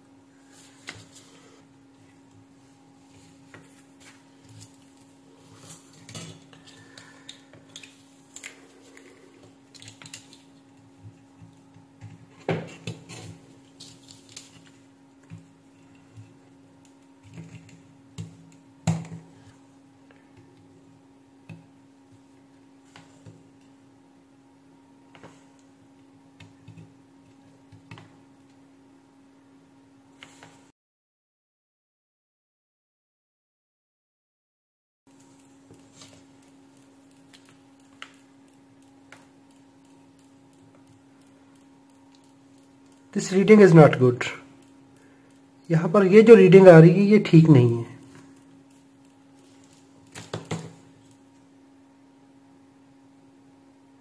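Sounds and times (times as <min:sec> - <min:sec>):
faint steady hum: 0:00.0 - 0:30.7, 0:35.1 - 0:54.0
faint clicks of probe tips: 0:35.1 - 0:43.2, 0:44.5 - 0:45.7, 0:48.0 - 0:51.5.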